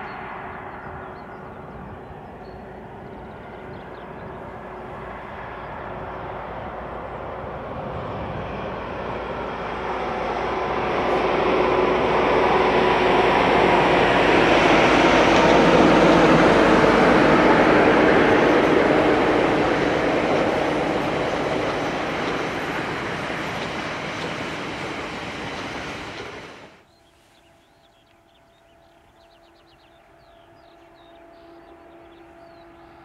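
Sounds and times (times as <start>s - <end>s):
diesel locomotive engine: 0.0s - 33.0s
train noise: 0.0s - 33.0s.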